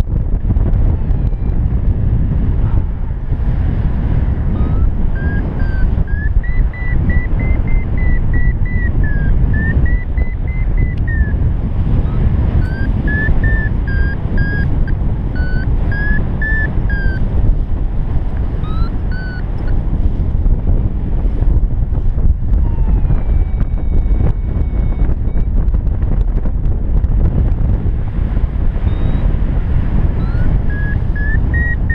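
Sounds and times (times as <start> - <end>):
wind rushing over microphone: 0.0 - 31.9
variometer beeping: 0.6 - 1.9, 4.1 - 17.7, 18.4 - 19.8, 22.5 - 25.8, 28.7 - 31.9.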